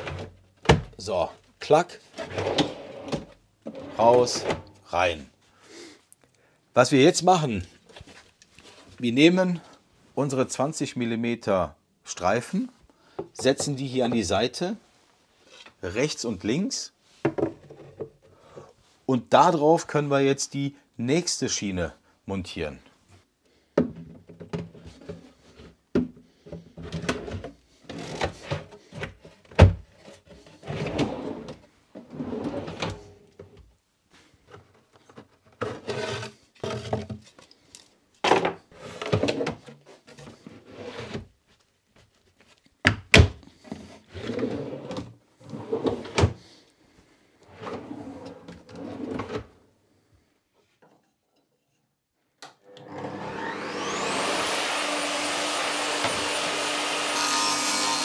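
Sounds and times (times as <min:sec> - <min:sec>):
drawers sliding on metal slides: 0:02.1 - 0:04.8, 0:26.8 - 0:28.7, 0:30.4 - 0:33.3, 0:35.6 - 0:36.9, 0:44.1 - 0:46.4, 0:47.5 - 0:49.6, 0:52.7 - 0:57.6
table saw motor spinning up: 0:52.7 - 0:58.0.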